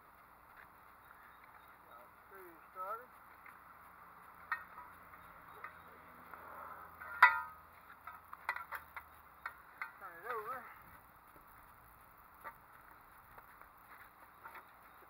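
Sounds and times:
metal frame knocking and clicking: 7.0s - 10.4s
ringing metal clang: 7.0s - 10.4s.

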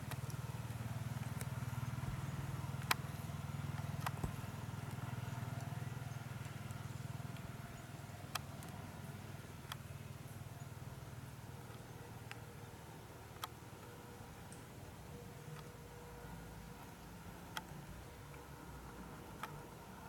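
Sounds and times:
sharp clicks: 0.0s - 5.8s, 8.2s - 8.9s, 9.6s - 9.9s, 13.3s - 14.7s, 19.2s - 19.7s.

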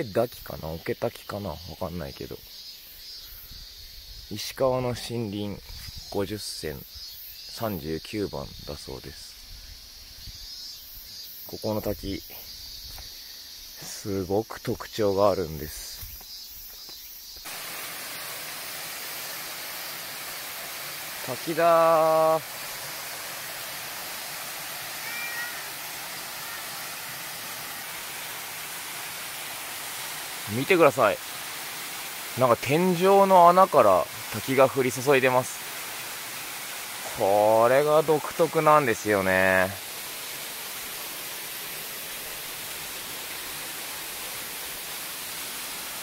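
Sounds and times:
waterfall rushing into a pool: 17.4s - 46.0s
faint high call: 24.8s - 27.2s.

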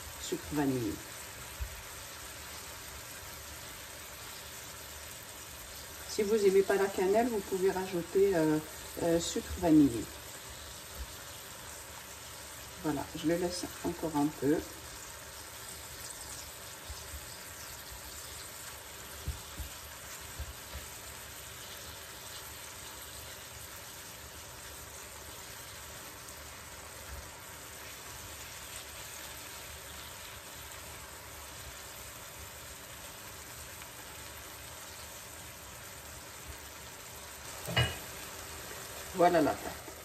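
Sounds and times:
apple slices sizzling in a pan: 0.0s - 40.0s
spatula tapping a pan: 19.1s - 21.0s.

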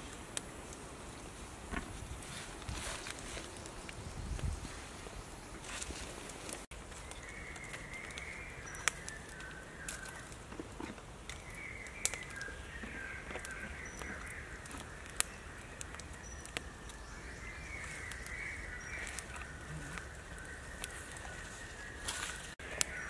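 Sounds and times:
birds warbling: 7.0s - 23.0s.

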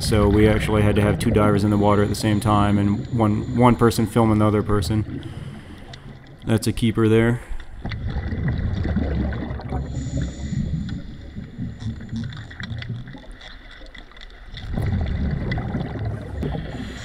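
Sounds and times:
underwater exhaled bubbles: 0.0s - 17.0s
faint clicks: 5.2s - 6.6s, 10.2s - 15.8s.

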